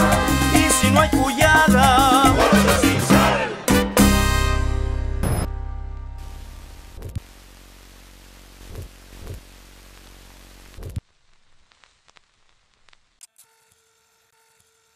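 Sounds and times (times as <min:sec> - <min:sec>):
low hum: 0:04.7 - 0:11.6
film static hiss: 0:06.2 - 0:13.3.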